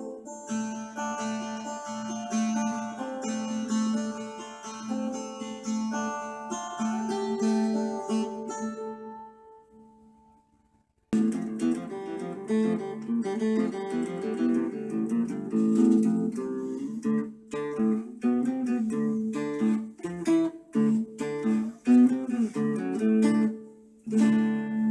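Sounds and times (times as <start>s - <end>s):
clean electric guitar: 11.2s - 24.9s.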